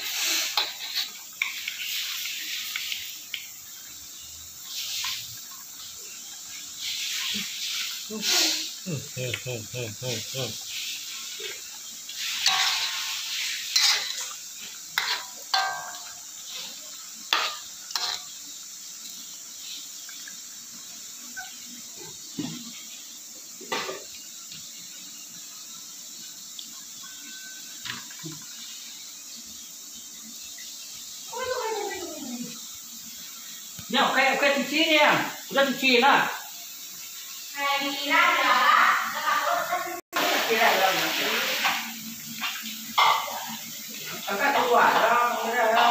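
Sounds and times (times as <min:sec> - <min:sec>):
metal cookware clattering: 0:12.2 - 0:14.4, 0:15.0 - 0:16.5, 0:43.0 - 0:45.9.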